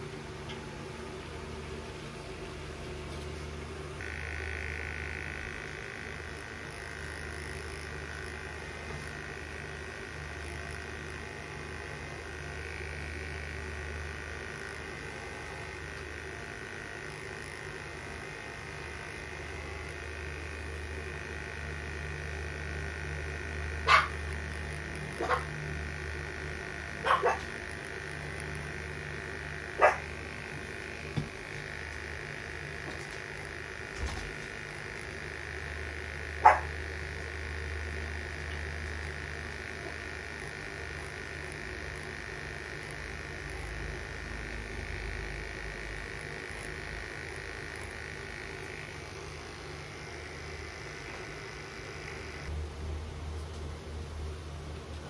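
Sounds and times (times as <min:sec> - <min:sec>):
steady low hum: 0:00.0 - 0:55.0
steady high drone: 0:04.0 - 0:52.7
dog barking: 0:23.8 - 0:24.2, 0:25.2 - 0:25.5, 0:27.0 - 0:27.5, 0:29.8 - 0:30.0, 0:36.4 - 0:36.7.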